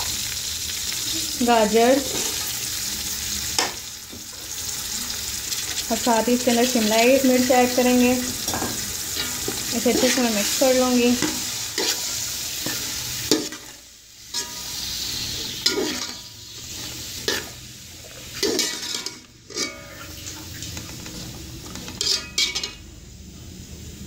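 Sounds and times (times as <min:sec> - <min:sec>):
vegetables sizzling in oil: 0:00.0 - 0:24.0
metal spoon scraping steel pot: 0:18.4 - 0:20.2, 0:21.9 - 0:22.7.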